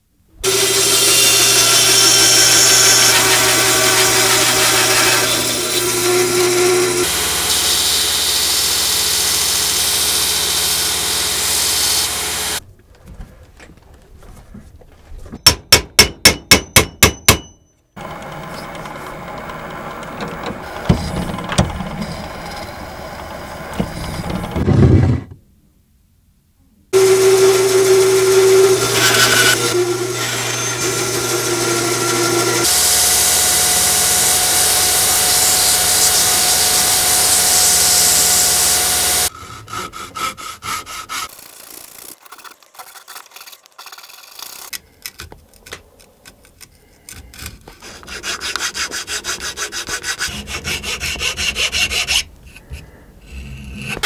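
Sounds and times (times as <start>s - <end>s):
band saw cutting metal bar: 0.4s - 12.6s, 18.0s - 24.6s, 27.0s - 42.6s, 47.9s - 52.3s
ringing hammer taps on metal: 15.4s - 17.7s.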